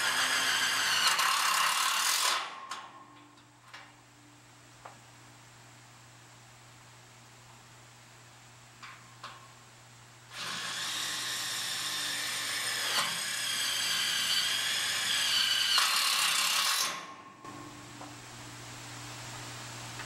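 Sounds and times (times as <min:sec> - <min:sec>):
power drill whining: 0:00.0 - 0:02.4, 0:10.3 - 0:17.1.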